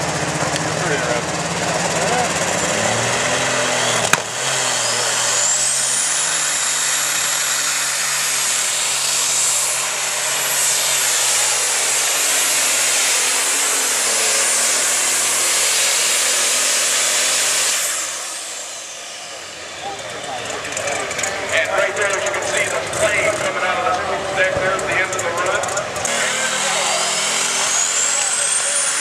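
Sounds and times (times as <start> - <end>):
diesel engine running flat out: 0.0 - 29.0
high turbo whine: 0.0 - 29.0.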